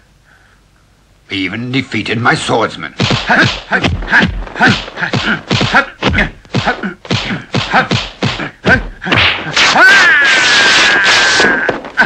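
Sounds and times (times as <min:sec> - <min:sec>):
punch and block whacks: 0:03.0 - 0:11.6.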